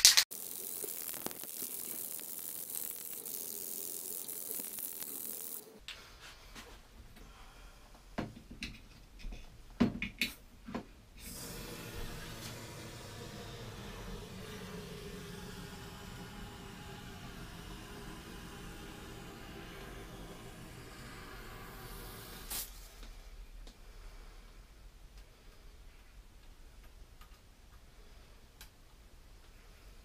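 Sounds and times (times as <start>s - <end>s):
aerosol can spraying hiss: 0.3s - 5.8s, 11.2s - 22.9s.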